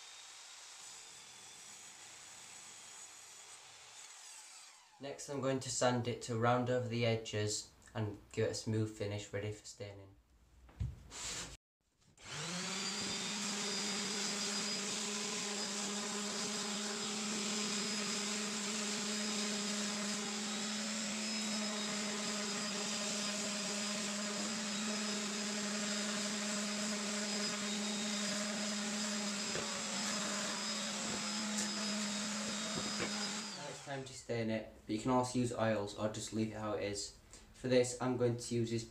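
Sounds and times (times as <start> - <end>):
orbital sander humming: 12.2 - 34.0.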